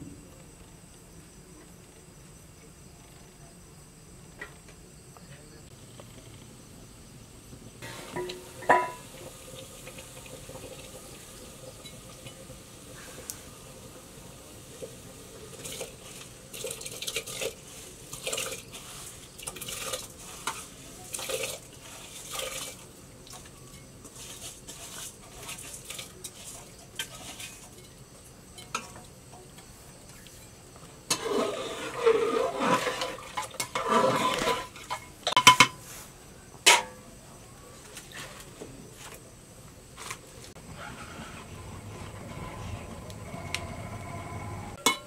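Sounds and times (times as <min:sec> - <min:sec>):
rice scraped from steel bowl: 0:15.5 - 0:22.8, 0:24.0 - 0:27.8, 0:31.1 - 0:35.1, 0:40.0 - 0:44.8.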